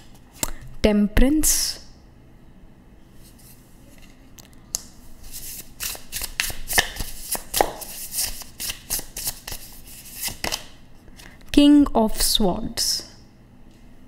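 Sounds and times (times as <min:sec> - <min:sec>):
cards being shuffled: 0:05.2 - 0:11.3.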